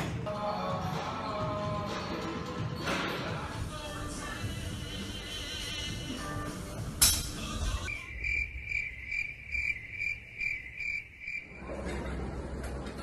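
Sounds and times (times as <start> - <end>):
crickets chirping: 7.9 - 11.7.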